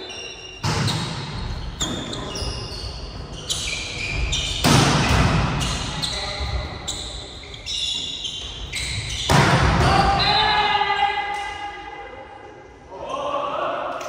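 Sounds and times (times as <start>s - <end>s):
sneakers squeaking on court: 0.0s - 10.4s.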